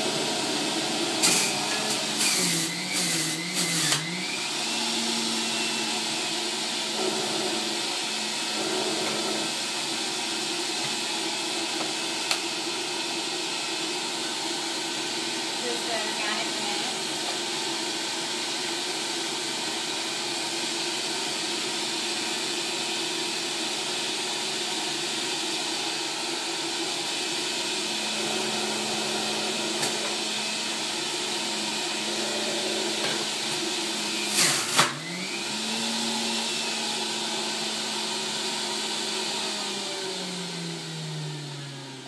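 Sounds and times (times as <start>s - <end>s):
produce forced through juicer: 0.0s - 12.6s, 26.7s - 42.0s
juicer motor running: 0.0s - 42.0s.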